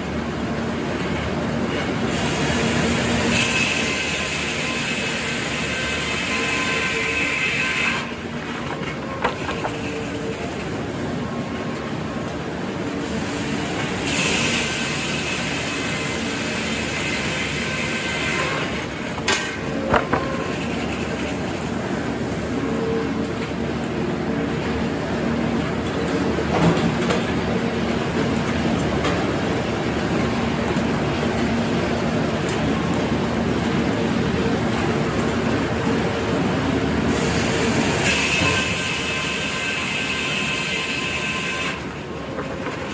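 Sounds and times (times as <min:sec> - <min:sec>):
hiss: 0:14.0 - 0:18.0.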